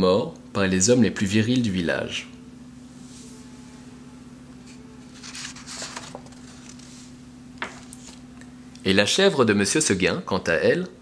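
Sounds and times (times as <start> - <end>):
steady low hum: 0.0 - 11.0
paper rustling and sliding: 4.7 - 8.2.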